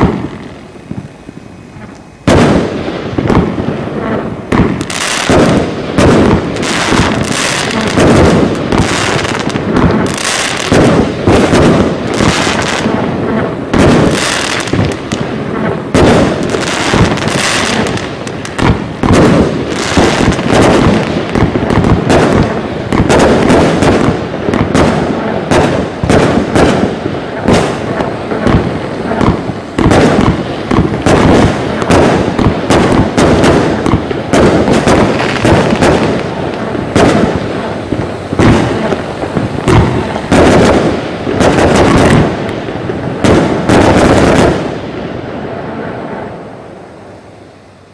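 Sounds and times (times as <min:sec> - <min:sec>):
firework cake shots: 0:00.0 - 0:44.8
crackling firework stars: 0:00.0 - 0:47.9.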